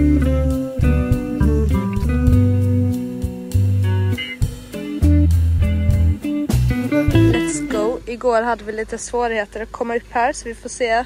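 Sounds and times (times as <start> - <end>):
guitar music with bass line: 0.0 - 8.1.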